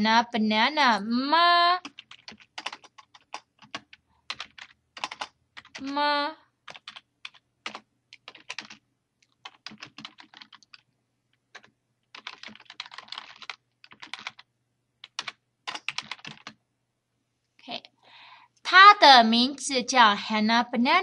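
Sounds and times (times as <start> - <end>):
typing on computer keyboard: 1.8 - 6.0, 6.6 - 16.6.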